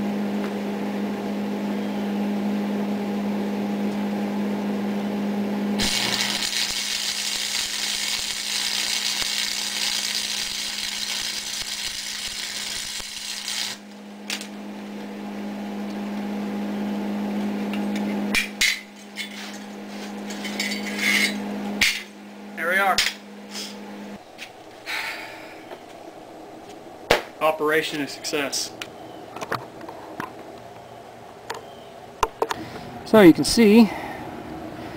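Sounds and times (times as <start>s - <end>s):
steady low hum: 0.0s - 34.9s
welding arc sizzling: 5.8s - 14.0s.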